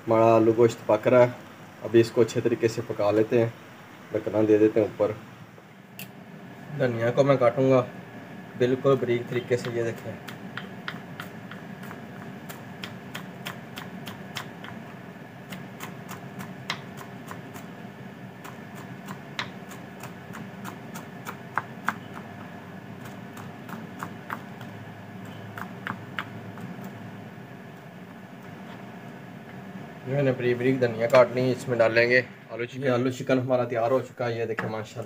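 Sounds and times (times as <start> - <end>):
faint steady hum: 0.0 - 35.0
knife chopping on wooden board: 18.5 - 26.7.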